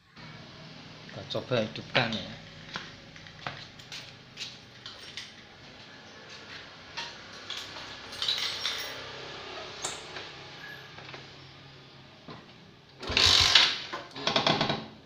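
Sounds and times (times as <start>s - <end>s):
light metallic clinks: 7.4s - 9.1s.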